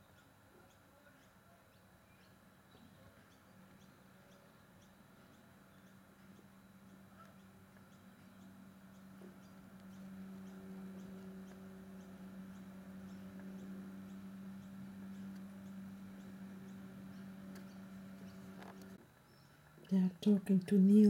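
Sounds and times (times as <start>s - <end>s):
camcorder zoom motor humming: 3.7s - 19.4s.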